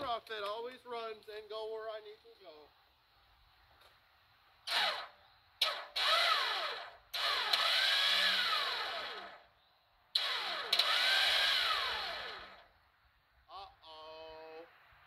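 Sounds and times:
starter motor whining: 4.7s - 9.5s, 10.2s - 12.7s.

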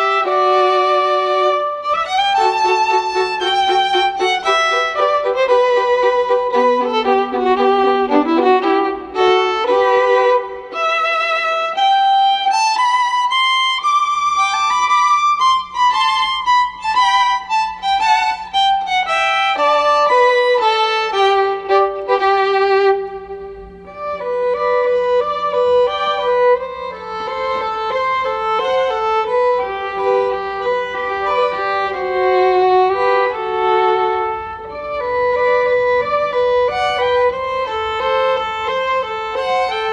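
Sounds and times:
instrumental background music: 0.0s - 39.9s.

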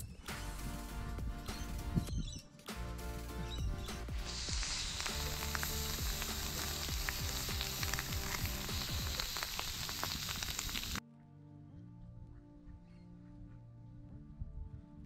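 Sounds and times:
background music: 0.0s - 15.0s
food sizzling in a pan: 4.1s - 11.0s.

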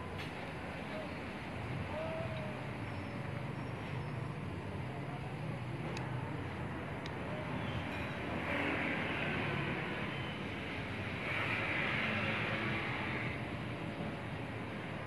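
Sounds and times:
vehicle noise rumble: 0.0s - 15.0s.

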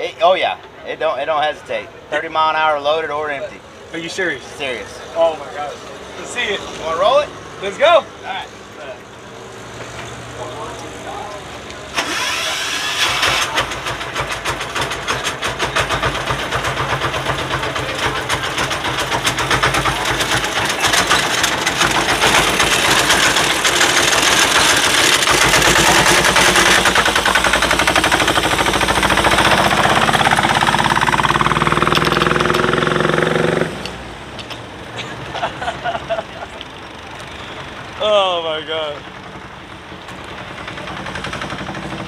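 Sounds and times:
small engine running: 12.0s - 33.9s, 40.1s - 42.0s.

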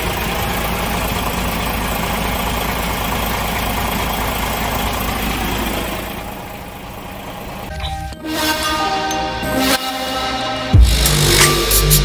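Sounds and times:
diesel truck engine idling: 0.0s - 9.4s.

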